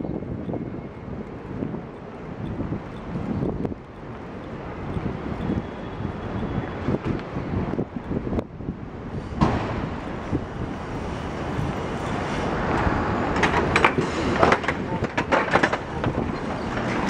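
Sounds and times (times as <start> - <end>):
traffic noise: 0.0 - 17.0
sharp knocks and clatters: 9.4 - 10.2, 12.1 - 17.0.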